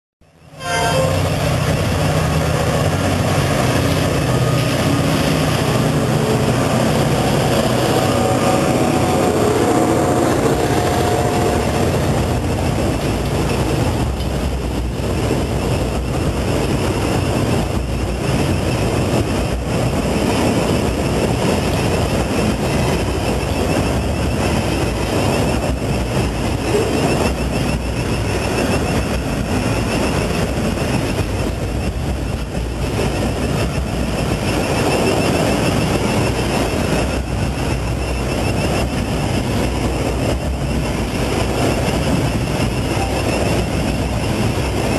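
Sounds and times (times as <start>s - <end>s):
train wheels rumbling on rails: 0.2s - 44.9s.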